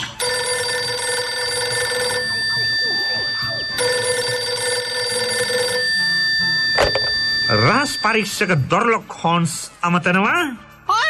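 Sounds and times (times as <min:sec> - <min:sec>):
telephone ringing: 0:00.0 - 0:08.5
steady high tone: 0:00.2 - 0:08.7.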